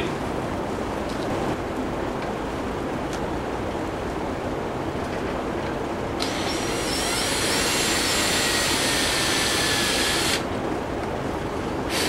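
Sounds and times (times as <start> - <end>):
low wind noise: 0.0 - 12.0
electric drill whining: 6.2 - 10.5.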